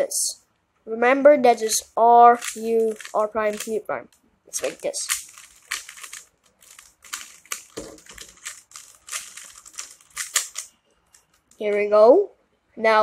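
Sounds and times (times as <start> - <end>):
plastic puzzle cube clicking: 2.3 - 3.8, 4.6 - 11.6.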